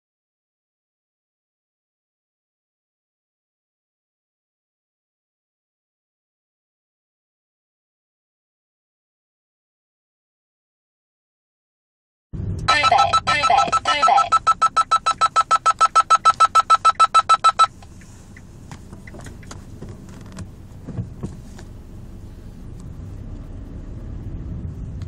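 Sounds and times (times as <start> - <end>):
low cabin noise: 12.4 - 25.0
fast electronic warning beeps: 12.7 - 17.8.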